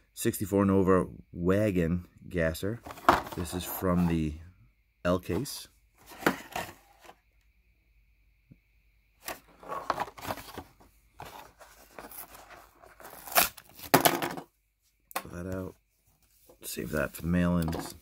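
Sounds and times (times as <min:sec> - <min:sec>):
cardboard and plastic ripping: 0:11.3 - 0:14.1.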